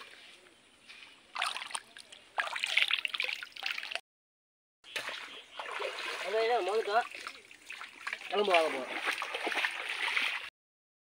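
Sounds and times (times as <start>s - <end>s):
water splashing by hands: 1.3s - 4.0s, 4.9s - 10.5s.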